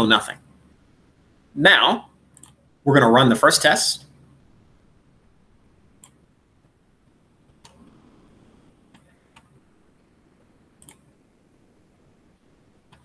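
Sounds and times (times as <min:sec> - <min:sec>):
computer mouse clicks: 0:02.3 - 0:02.6, 0:06.0 - 0:06.2, 0:08.9 - 0:09.6, 0:10.8 - 0:11.1.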